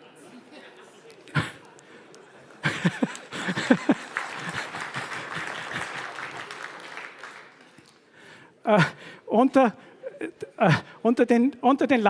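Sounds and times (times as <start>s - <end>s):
audience laughing: 2.3s - 6.7s
audience clapping: 2.4s - 8.2s.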